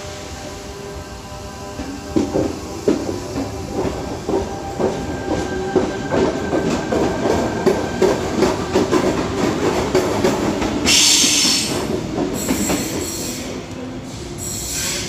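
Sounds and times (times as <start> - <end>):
train rumble: 0.0 - 15.0
loud train hiss: 10.8 - 15.0.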